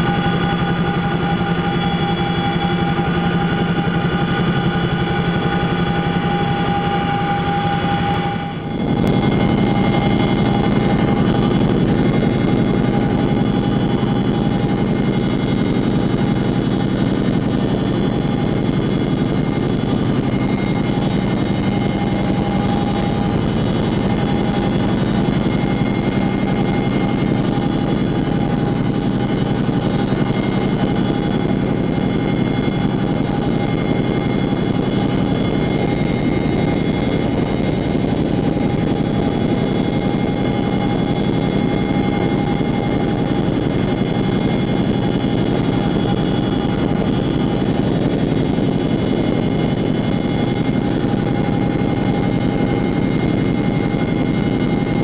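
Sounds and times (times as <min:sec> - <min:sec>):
helicopter engines and rotors droning: 0:00.0 - 0:55.0
steady whining tones: 0:00.0 - 0:55.0.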